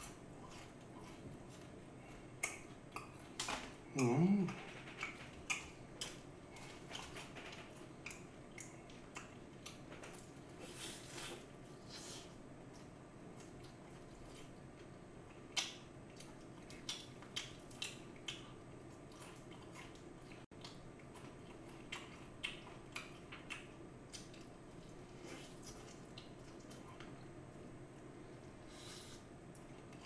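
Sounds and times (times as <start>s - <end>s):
low room hum: 0.0s - 30.0s
crunching fried chicken: 12.0s - 27.2s.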